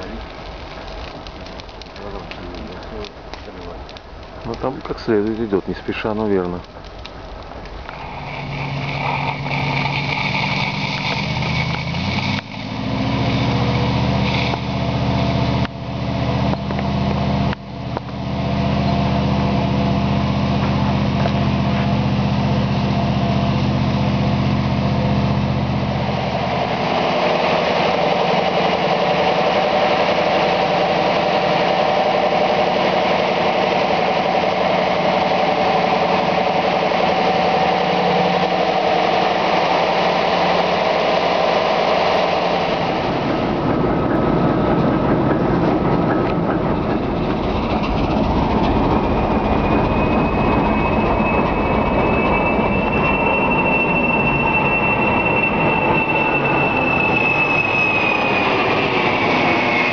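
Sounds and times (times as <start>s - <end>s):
diesel engine droning: 0.0s - 59.9s
higher-pitched engine hum: 8.0s - 59.9s.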